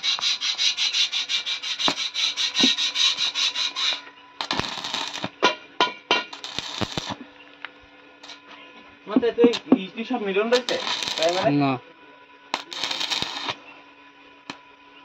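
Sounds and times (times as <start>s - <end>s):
angle grinder grinding steel: 0.0s - 5.3s, 9.5s - 11.8s, 12.6s - 13.6s.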